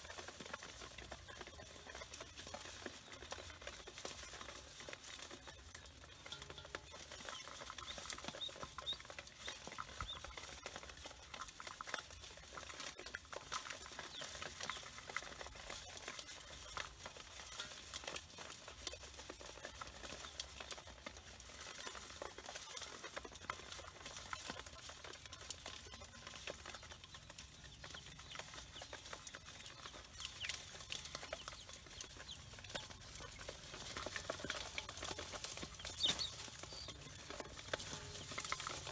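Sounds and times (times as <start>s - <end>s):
ducklings peeping: 0.0s - 38.9s
feet tapping on metal basin: 5.7s - 11.6s.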